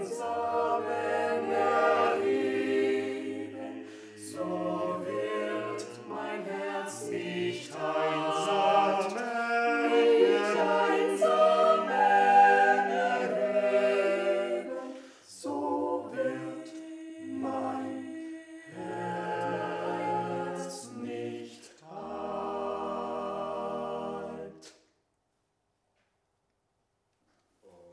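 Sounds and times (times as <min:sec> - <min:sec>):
choir singing a cappella: 0:00.0 - 0:24.8.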